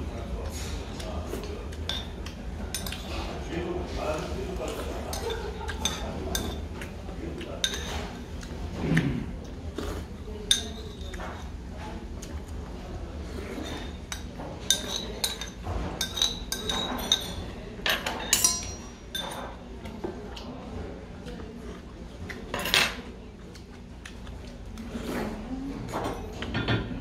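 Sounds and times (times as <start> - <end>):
spoon clinking on ceramic bowl: 14.1 - 19.5.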